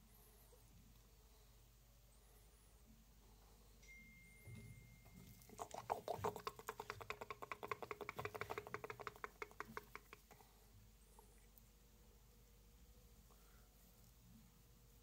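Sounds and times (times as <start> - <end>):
fingers scratching cat fur: 5.4 - 10.4.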